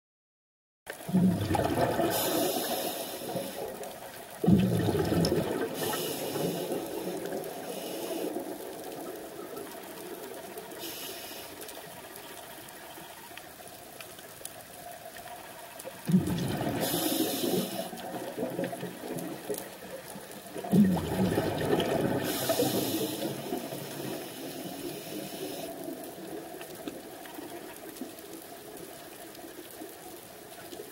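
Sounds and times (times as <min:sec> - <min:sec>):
steady underwater noise: 0:00.9 - 0:30.9
bubbles gurgling: 0:01.0 - 0:10.8, 0:15.9 - 0:28.0
diver breathing through regulator: 0:02.0 - 0:03.8, 0:05.6 - 0:08.6, 0:10.8 - 0:11.7, 0:16.7 - 0:18.1, 0:22.2 - 0:25.8
high hiss: 0:02.1 - 0:03.9, 0:05.6 - 0:08.8, 0:10.6 - 0:12.4, 0:16.8 - 0:18.0, 0:22.2 - 0:25.8.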